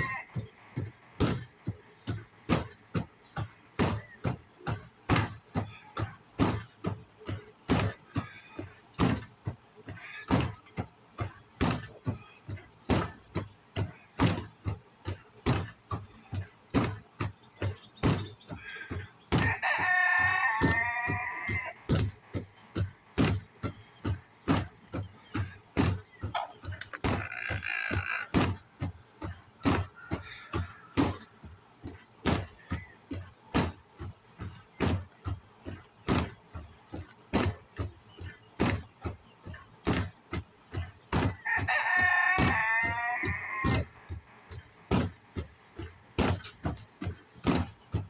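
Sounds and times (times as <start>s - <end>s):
punches smacking punching ball: 0.3s - 19.6s, 20.2s - 27.6s, 28.3s - 48.0s
rooster crowing: 19.4s - 21.8s, 41.4s - 43.8s.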